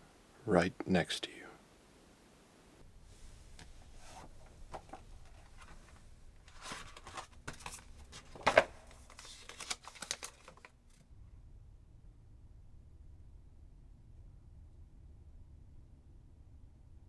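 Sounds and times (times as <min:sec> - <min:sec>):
paper rustling and crinkling: 0:03.6 - 0:11.0.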